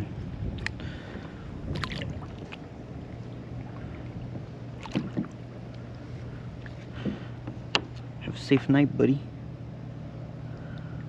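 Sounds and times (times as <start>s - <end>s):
water sloshing around a kayak: 0.0s - 8.2s
steady low hum: 0.0s - 11.0s.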